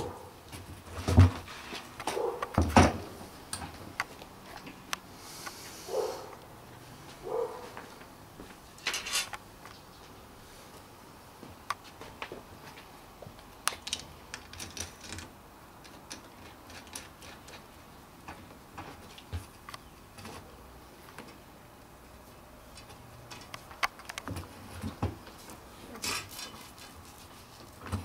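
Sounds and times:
wooden parts clicking and knocking: 0:13.7 - 0:17.7, 0:22.8 - 0:25.2.

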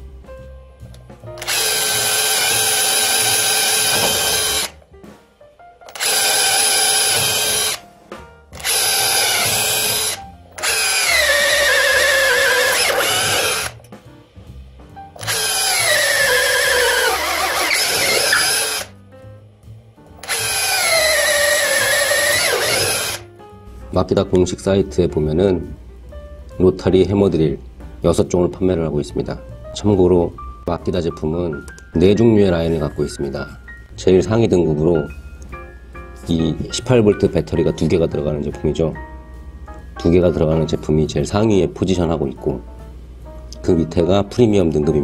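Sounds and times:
rotary hammer boring into wood: 0:01.4 - 0:04.8, 0:05.9 - 0:07.8, 0:08.6 - 0:13.8, 0:15.2 - 0:18.9, 0:20.2 - 0:23.2.

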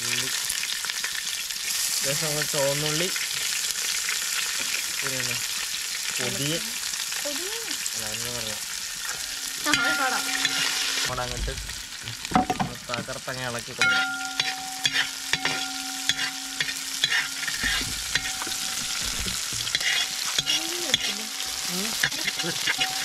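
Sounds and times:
shallots sizzling in hot oil: 0:00.0 - 0:23.0.

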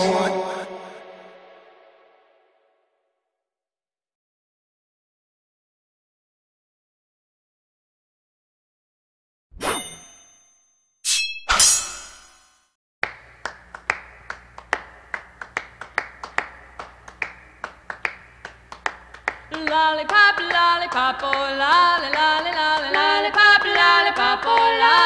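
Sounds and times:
layered harmony vocals: 0:22.2 - 0:25.0.

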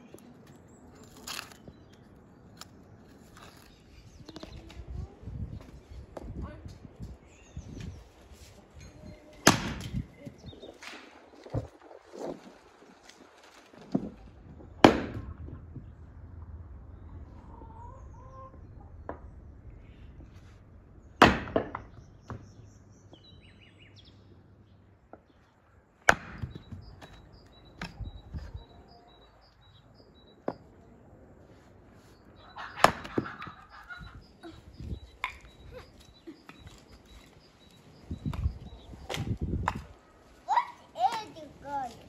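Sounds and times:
chicken clucking: 0:17.4 - 0:18.6, 0:32.4 - 0:34.3
axe splitting logs: 0:21.2 - 0:22.4, 0:26.1 - 0:28.1.

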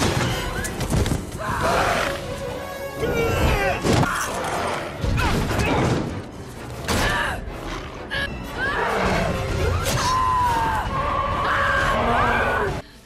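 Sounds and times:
orchestral music: 0:00.0 - 0:12.8
people shouting and yelling: 0:08.4 - 0:12.8.

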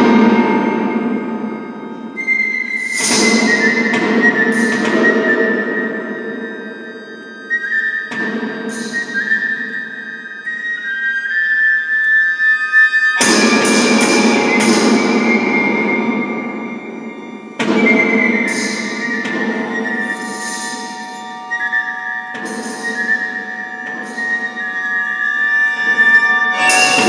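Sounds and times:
high held tones: 0:00.0 - 0:27.0
struck percussion attacks: 0:13.2 - 0:16.3, 0:26.6 - 0:27.0.

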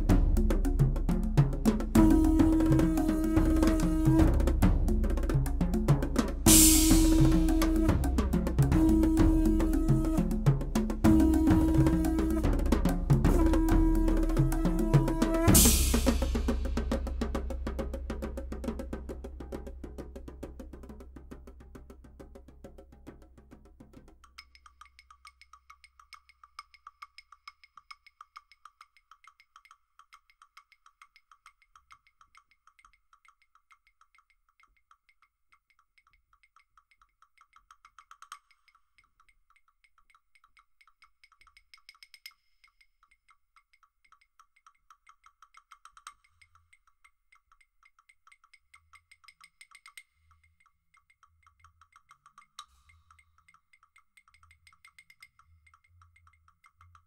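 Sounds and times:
wooden claves clicking: 0:24.2 - 0:57.0.

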